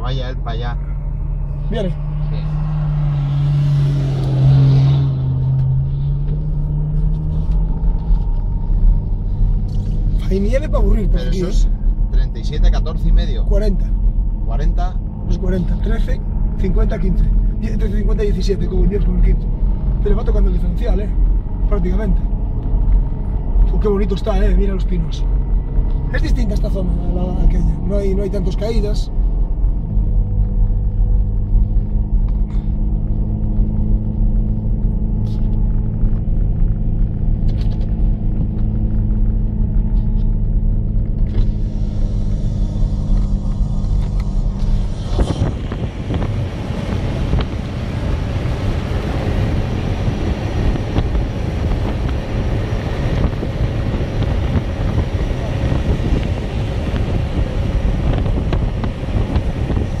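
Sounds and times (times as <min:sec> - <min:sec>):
vehicle engine droning: 0:00.0 - 1:00.0
wind on microphone: 0:41.4 - 1:00.0.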